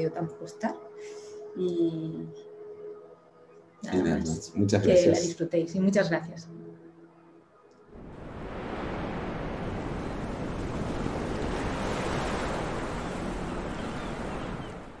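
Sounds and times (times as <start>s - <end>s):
ocean wave rushing: 8.0s - 15.0s.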